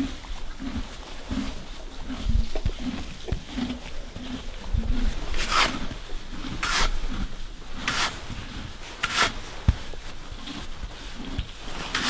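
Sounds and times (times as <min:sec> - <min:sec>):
brush rubbing horse's coat: 0:00.0 - 0:12.0
horse munching feed: 0:00.0 - 0:12.0.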